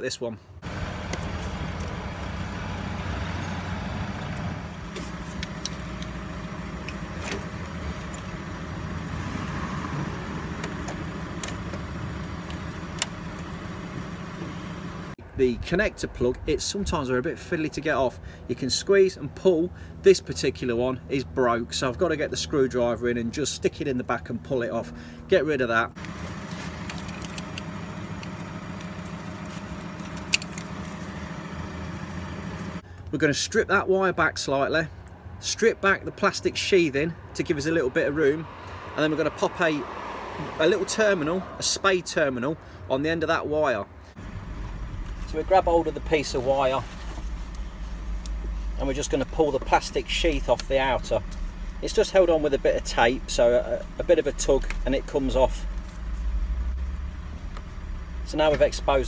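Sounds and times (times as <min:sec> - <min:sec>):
vehicle engine running: 0:00.6 - 0:15.2, 0:26.0 - 0:33.0, 0:44.1 - 0:59.0
hands handling engine parts: 0:26.0 - 0:31.4, 0:45.0 - 0:52.5.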